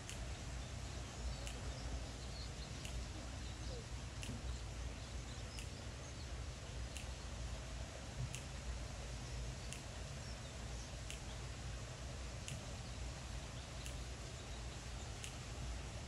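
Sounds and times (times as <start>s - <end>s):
bird chirps: 0.3s - 7.4s.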